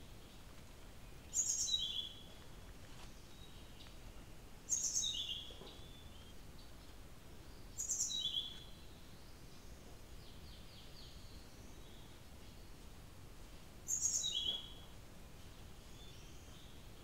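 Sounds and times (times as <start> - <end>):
steady hiss: 0.0 - 17.0
bird singing: 1.0 - 2.4, 3.2 - 12.8, 13.9 - 15.0, 15.8 - 17.0.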